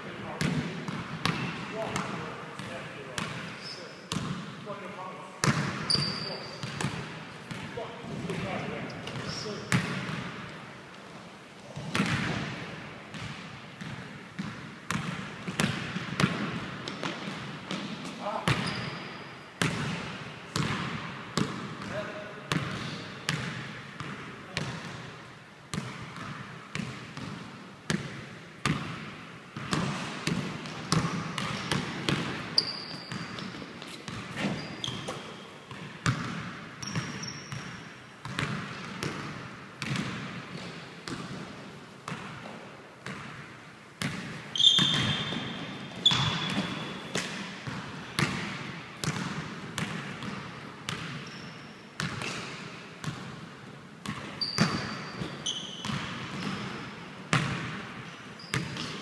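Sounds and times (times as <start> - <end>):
basketball bouncing on wooden floor: 4.1 - 4.5, 13.1 - 18.9, 20.6 - 21.9, 25.7 - 41.5, 44.0 - 51.4, 54.0 - 57.8
shoes squeaking on wood: 32.6 - 35.3, 46.0 - 47.2.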